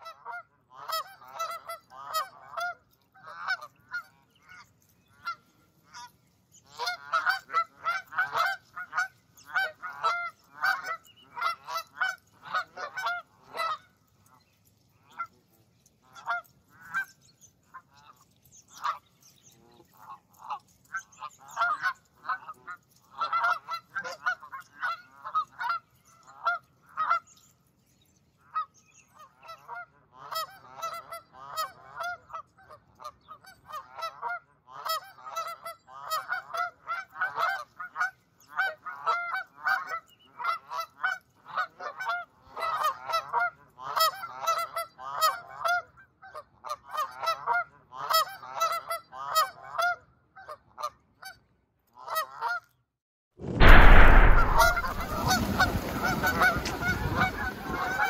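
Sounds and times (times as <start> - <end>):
geese honking: 6.7 - 13.8, 54.6 - 58.0.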